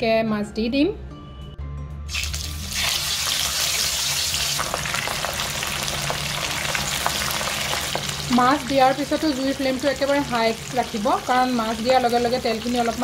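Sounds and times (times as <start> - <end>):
oil popping: 2.1 - 8.2
fish sizzling in hot oil: 2.1 - 13.0.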